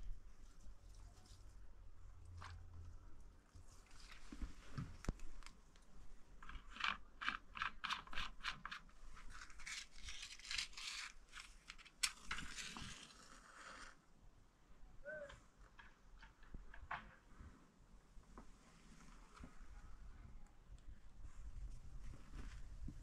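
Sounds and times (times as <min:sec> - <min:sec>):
match scratching strokes: 0:12.4 - 0:14.0.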